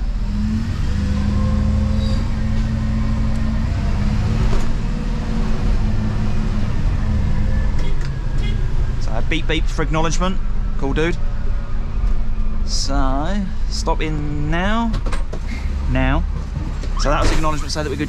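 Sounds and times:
truck diesel engine drone: 0.0 - 18.0.

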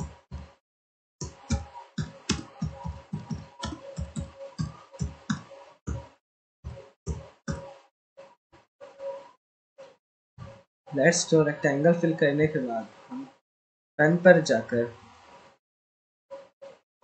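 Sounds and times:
computer keyboard typing: 1.2 - 6.1.

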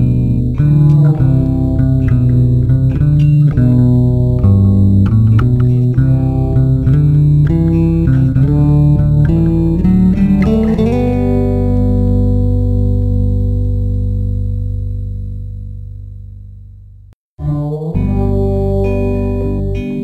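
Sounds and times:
guitar music: 0.0 - 16.8, 17.5 - 20.0.

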